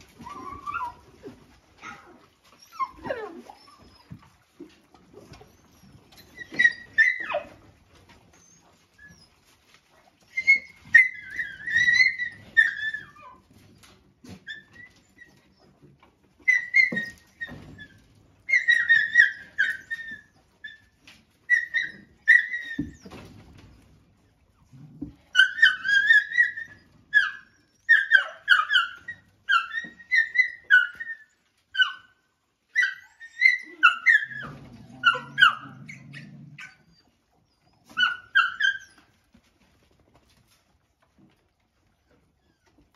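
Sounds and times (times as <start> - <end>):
dogs whining and yelping: 0.0 - 42.9
dog growling: 34.3 - 36.9.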